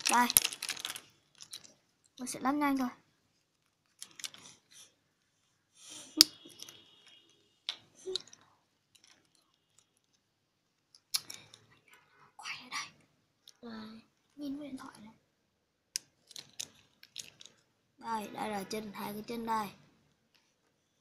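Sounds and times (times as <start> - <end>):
plastic toy parts clicking: 0.0 - 2.3, 3.6 - 4.5, 7.7 - 10.2, 10.8 - 11.6, 15.9 - 17.6.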